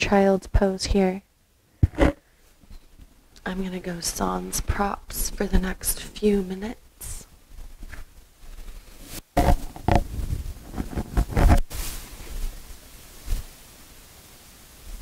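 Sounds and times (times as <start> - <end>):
faint steady hiss: 0.0 - 15.0
clothing rustling on yoga mat: 7.4 - 9.4, 10.1 - 13.9.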